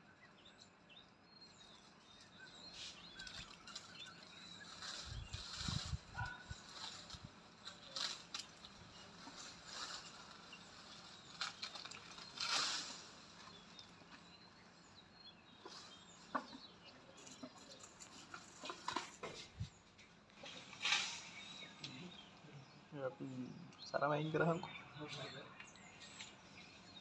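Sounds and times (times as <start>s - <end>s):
leaves rustling: 1.6s - 14.3s, 17.1s - 22.4s
twigs snapping: 11.3s - 13.1s.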